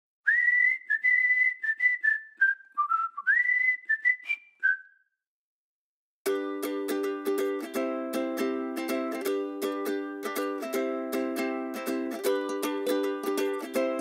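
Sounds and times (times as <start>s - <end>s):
whistled tune: 0.3s - 5.2s
plucked-string music: 6.3s - 14.0s.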